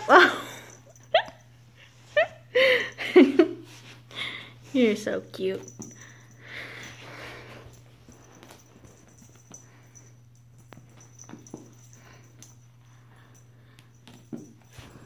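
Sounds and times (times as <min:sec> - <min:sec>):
steady low hum: 0:00.0 - 0:15.0
kitten scuffling on carpet: 0:03.6 - 0:04.1, 0:06.6 - 0:12.4, 0:14.0 - 0:15.0.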